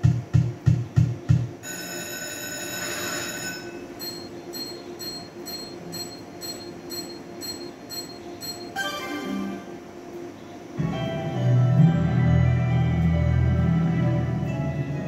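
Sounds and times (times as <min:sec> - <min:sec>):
slot machine chiming tone: 0:01.6 - 0:09.8
slot machine ringing chime: 0:01.6 - 0:09.8.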